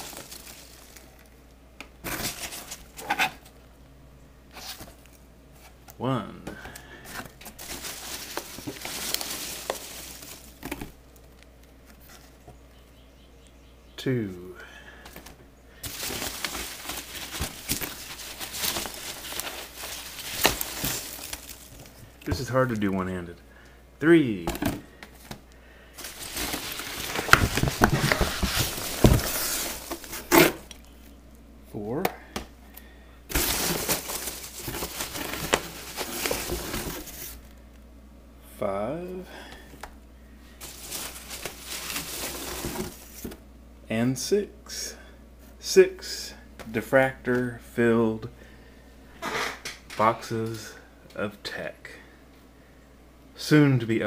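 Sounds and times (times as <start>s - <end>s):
packing peanuts and cardboard rustling: 0.0s - 1.4s, 2.0s - 3.4s, 6.5s - 12.4s, 15.0s - 22.9s, 26.0s - 30.9s, 33.3s - 37.6s, 40.5s - 43.4s.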